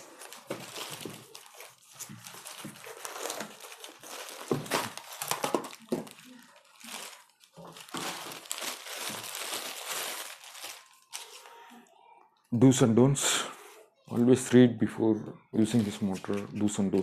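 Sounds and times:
cardboard packaging rustling: 0.0 - 11.7, 15.6 - 17.0
plastic wrapping crinkling: 0.0 - 12.1, 15.6 - 17.0.

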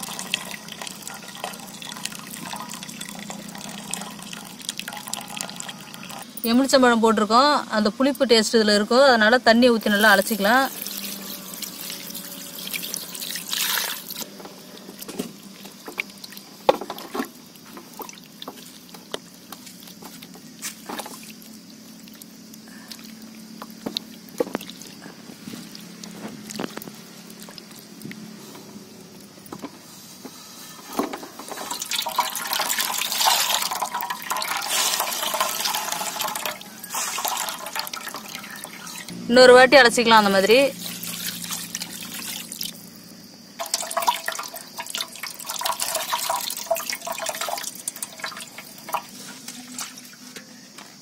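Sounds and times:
water splashing into metal pot: 0.0 - 6.3, 9.8 - 20.0, 20.8 - 28.0, 31.0 - 39.1, 40.8 - 43.0, 43.6 - 50.0
water pouring over curds: 0.0 - 6.4, 9.8 - 28.2, 31.0 - 39.1, 40.8 - 43.0, 43.6 - 50.2.

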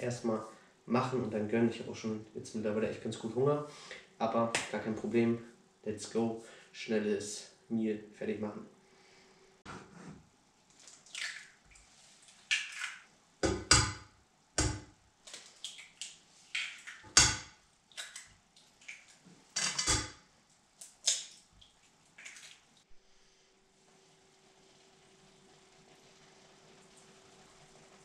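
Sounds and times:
egg dripping into pan: 12.4 - 20.2.

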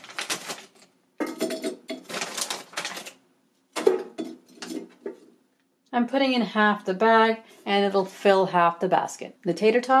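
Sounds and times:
onion rings clattering in basket: 0.0 - 3.2.

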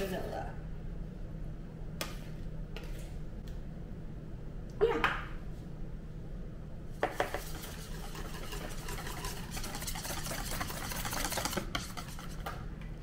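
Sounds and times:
utensil knocking against bowl: 7.0 - 7.6
utensil scraping and clinking bowl: 7.0 - 12.6.

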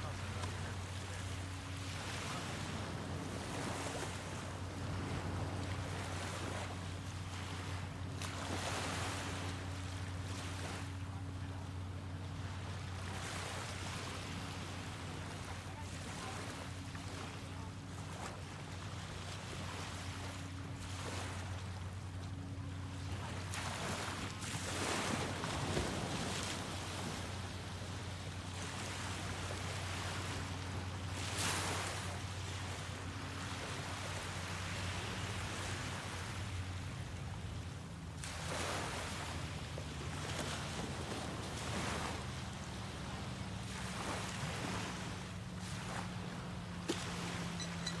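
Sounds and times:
waves breaking on sandy beach: 0.0 - 48.0.

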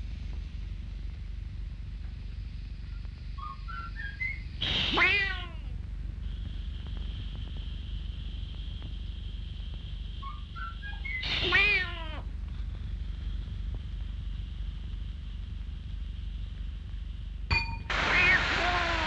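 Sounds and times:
old film soundtrack hum: 0.0 - 19.0
cartoon kitten meow: 4.8 - 5.6, 11.3 - 12.2, 18.1 - 19.0.

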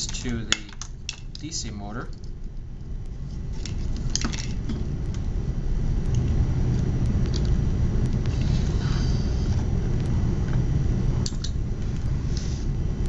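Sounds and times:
wire clips clicking and rattling: 0.0 - 2.4
steady low rumble: 0.0 - 13.0.

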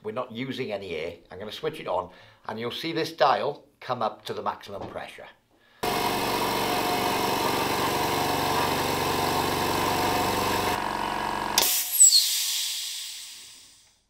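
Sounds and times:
air compressor humming: 5.8 - 12.2
hiss of released air: 11.6 - 14.0.

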